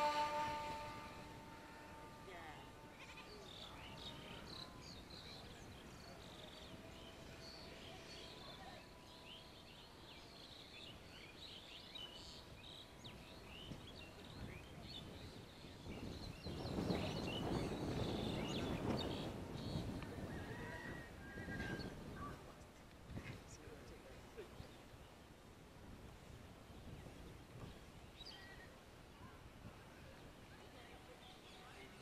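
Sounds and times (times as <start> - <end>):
wind on microphone: 13.0 - 23.7, 25.7 - 28.4.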